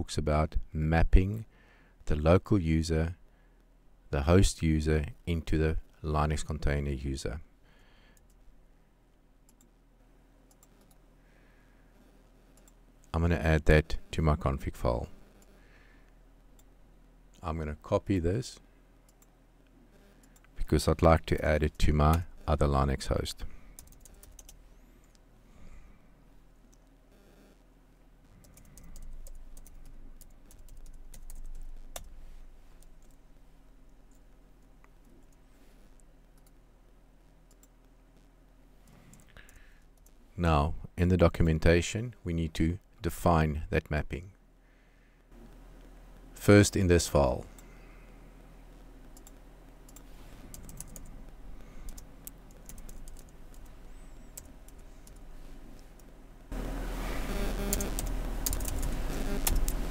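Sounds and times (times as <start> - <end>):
typing on keyboard: 23.8 - 24.6, 28.4 - 32.1, 49.2 - 51.1, 51.9 - 53.7, 57.7 - 59.8.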